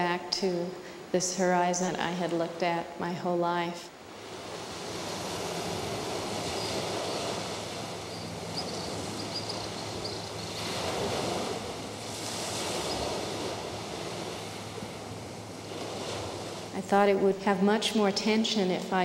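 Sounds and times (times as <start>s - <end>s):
small waves washing on beach: 4.0s - 17.2s.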